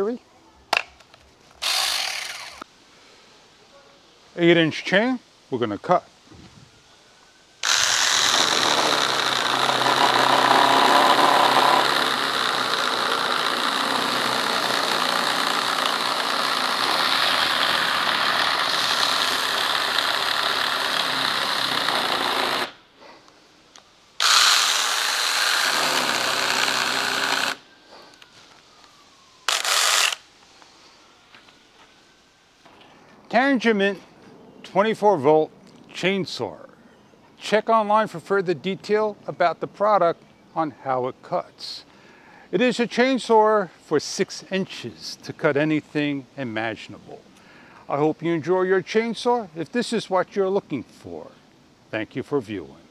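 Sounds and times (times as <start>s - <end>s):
electric chainsaw cutting wood: 1.6s - 2.6s, 7.6s - 22.8s, 24.2s - 27.6s, 29.4s - 30.2s.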